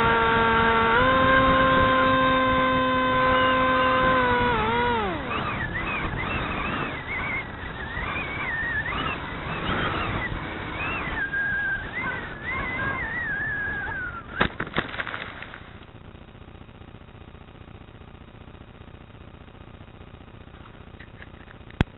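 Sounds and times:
model plane motor whine: 0:00.0 - 0:16.2.

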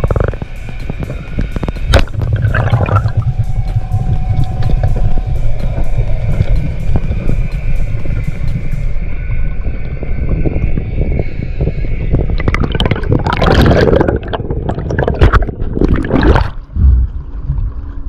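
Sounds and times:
bubbling and splashing: 0:00.0 - 0:00.5, 0:01.6 - 0:05.3, 0:12.2 - 0:18.0
low rumble of water: 0:00.0 - 0:18.0.

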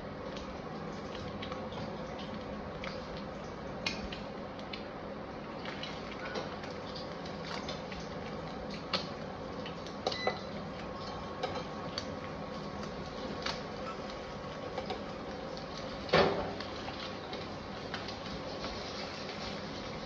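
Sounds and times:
food sizzling on a pan: 0:05.9 - 0:20.0.

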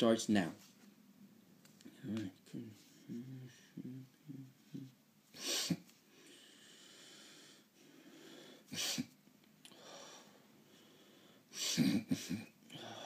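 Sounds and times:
person sniffling: 0:02.6 - 0:07.2, 0:08.3 - 0:09.2, 0:11.5 - 0:13.0.

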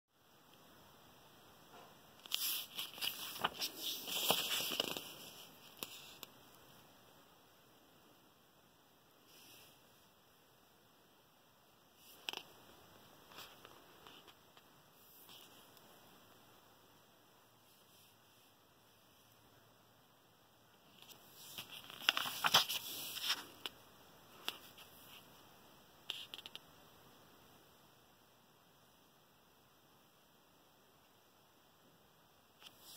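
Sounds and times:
paper pages rustling: 0:02.2 - 0:06.3, 0:20.9 - 0:23.8, 0:24.4 - 0:25.2.

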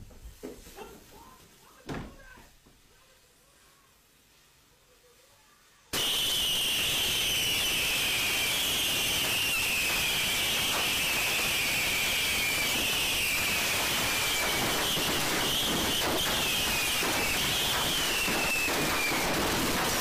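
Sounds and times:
fireworks hissing: 0:00.1 - 0:20.0
firework pops: 0:05.9 - 0:20.0
shrill firework whistle: 0:05.9 - 0:20.0.

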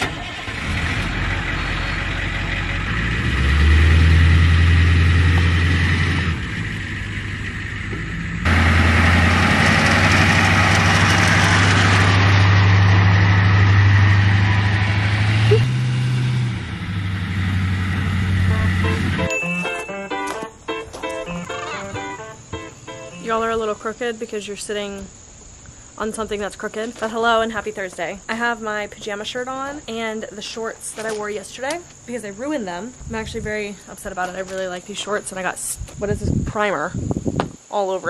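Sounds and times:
bus engine running: 0:00.0 - 0:23.2.

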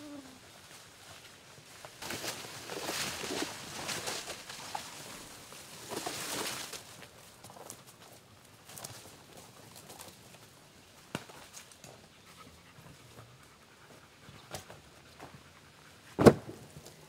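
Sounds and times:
dog panting: 0:12.0 - 0:16.2
heavy thud: 0:16.2 - 0:16.7.

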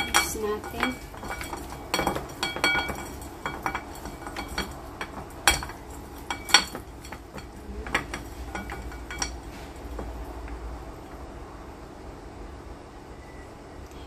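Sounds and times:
meat knocking against ceramic dish: 0:00.0 - 0:10.2.

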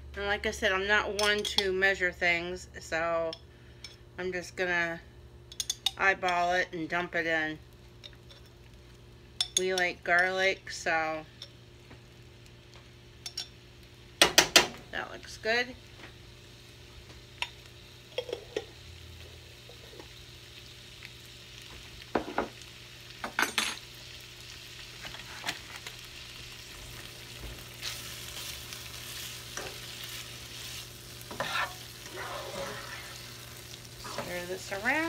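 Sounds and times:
food sizzling in frying pan: 0:05.6 - 0:35.0
spatula scraping pan: 0:29.1 - 0:34.9.

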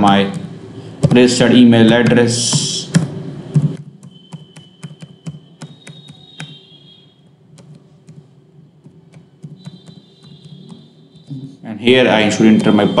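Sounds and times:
keyboard typing: 0:01.0 - 0:06.8, 0:07.4 - 0:11.3.

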